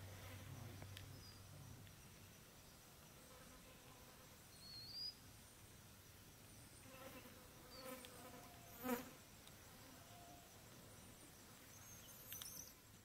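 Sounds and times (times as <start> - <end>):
faint insect buzz: 0.0 - 13.0.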